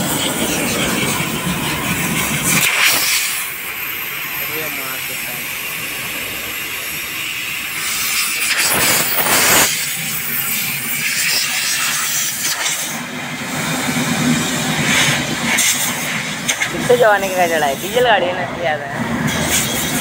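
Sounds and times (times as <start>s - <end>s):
compressed air hissing: 0.0s - 18.1s.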